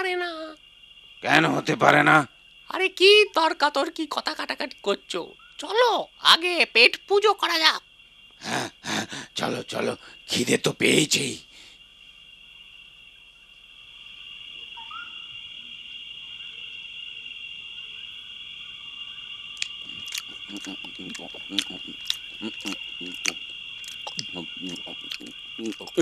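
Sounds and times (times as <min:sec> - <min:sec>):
crickets chirring: 0:00.0 - 0:26.0
owl hooting: 0:14.6 - 0:16.8, 0:17.7 - 0:26.0
animals crunching and munching: 0:19.6 - 0:26.0.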